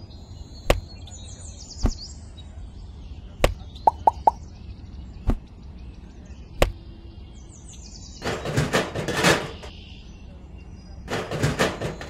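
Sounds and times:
birds chirping: 0.0s - 12.0s
sharp clicks and knocks: 0.7s - 0.9s, 8.2s - 9.8s, 11.1s - 12.0s
hollow plops: 3.4s - 4.4s.

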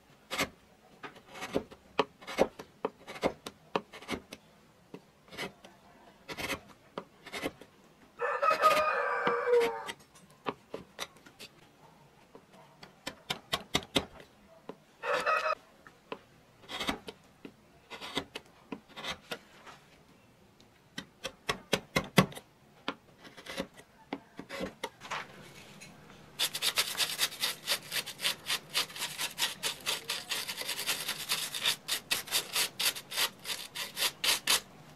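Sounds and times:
gouge scraping through wood: 0.3s - 4.3s, 5.3s - 5.6s, 6.3s - 7.7s, 16.6s - 17.2s, 17.9s - 19.8s, 23.2s - 23.8s, 24.4s - 34.8s
rasping strokes on wood: 26.4s - 34.7s.

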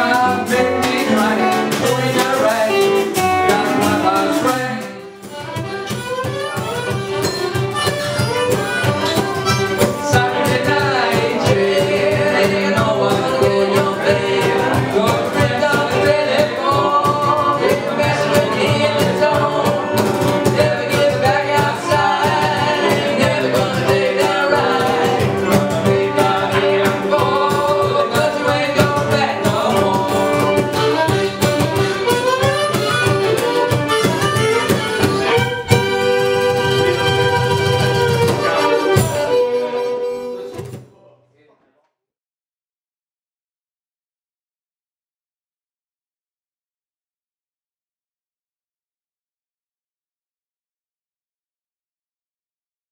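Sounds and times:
fiddle: 0.0s - 40.6s
harmonica: 0.0s - 40.8s
acoustic guitar: 0.0s - 41.0s
percussion beat: 0.0s - 41.0s.

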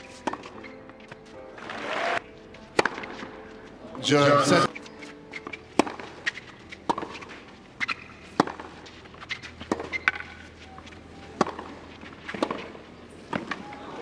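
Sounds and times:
racquet striking ball: 0.0s - 1.7s, 2.7s - 3.4s, 5.3s - 10.5s, 11.4s - 13.8s
ball bouncing: 0.2s - 1.2s, 2.8s - 3.3s, 5.4s - 8.7s, 9.3s - 10.5s, 11.4s - 13.6s.

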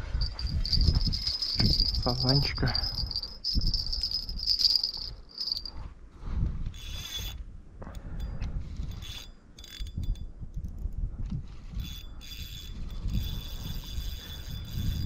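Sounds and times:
fishing reel whirring and ratcheting: 0.2s - 5.7s, 6.7s - 7.4s, 8.6s - 10.2s, 11.7s - 15.0s.

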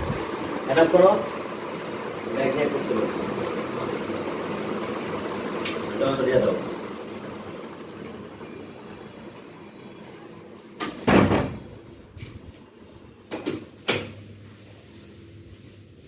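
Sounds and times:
door shutting thud: 10.9s - 11.7s.

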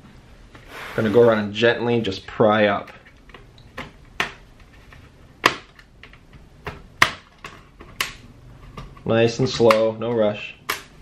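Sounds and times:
plastic clips snapping loose: 10.6s - 10.9s.

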